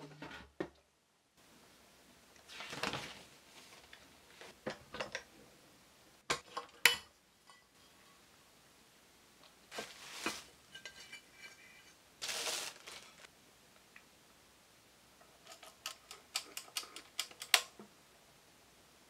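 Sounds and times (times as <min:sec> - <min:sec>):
plastic packing rustling: 0:09.7 - 0:10.6, 0:12.2 - 0:13.3.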